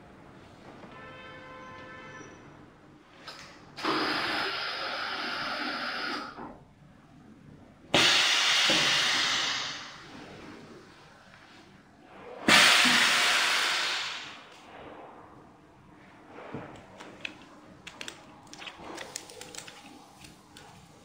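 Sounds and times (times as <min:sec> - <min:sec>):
compressed air hissing: 0:07.9 - 0:10.1, 0:12.5 - 0:14.5.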